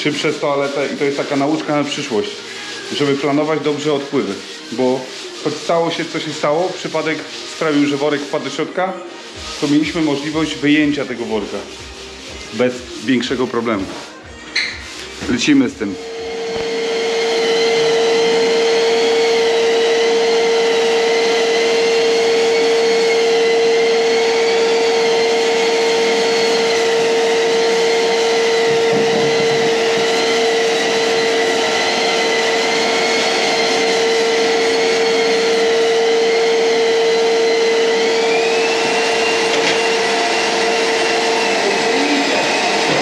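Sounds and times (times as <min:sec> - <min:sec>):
drywall sander motor hum and whine: 0:16.0 - 0:43.0.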